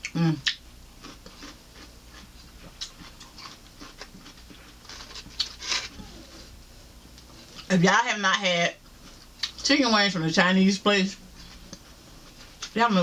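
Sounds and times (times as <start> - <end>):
chewing crunches: 0.0 - 6.5, 8.8 - 9.6.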